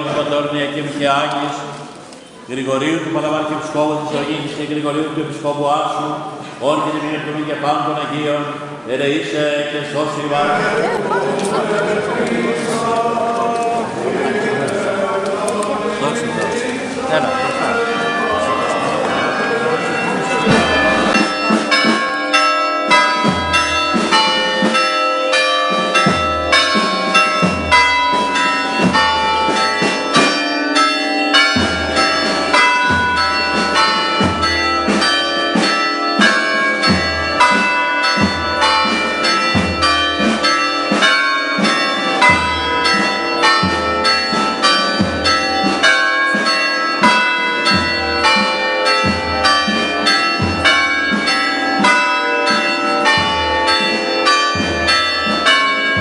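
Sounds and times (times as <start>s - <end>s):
church bells pealing: 0.0s - 56.0s
deep bell tolling: 17.0s - 56.0s.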